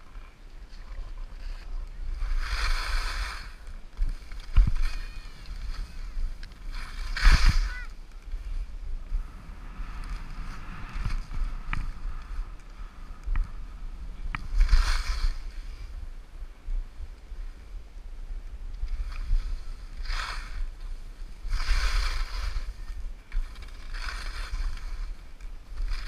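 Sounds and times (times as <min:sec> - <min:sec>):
wind rumble on microphone: 0:00.0 - 0:26.0
skis hissing through snow: 0:01.4 - 0:13.0, 0:14.4 - 0:16.0, 0:18.9 - 0:26.0.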